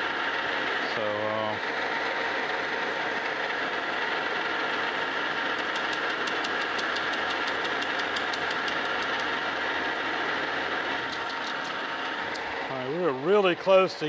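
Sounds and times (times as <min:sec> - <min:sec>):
metal lathe whine: 0:00.0 - 0:05.8, 0:09.2 - 0:14.0
rapid regular cutter ticking: 0:05.5 - 0:09.8, 0:10.9 - 0:13.5.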